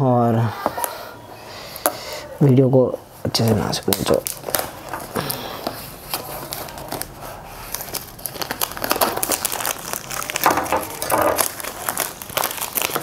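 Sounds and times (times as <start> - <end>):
plastic shrink-wrap crinkling: 3.3 - 13.0.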